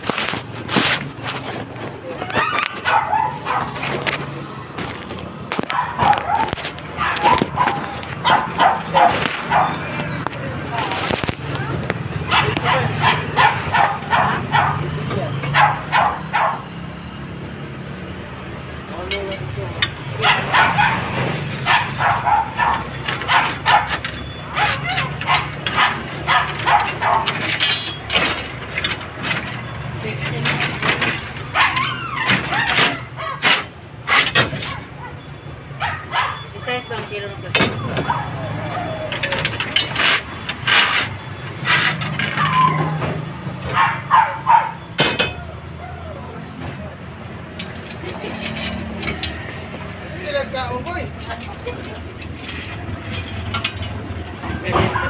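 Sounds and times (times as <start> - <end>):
dog barking: 2.4 - 3.8, 5.7 - 9.9, 12.2 - 14.9, 15.5 - 16.7, 20.2 - 27.4, 31.5 - 33.6, 35.8 - 36.5, 38.0 - 38.9, 43.7 - 44.8.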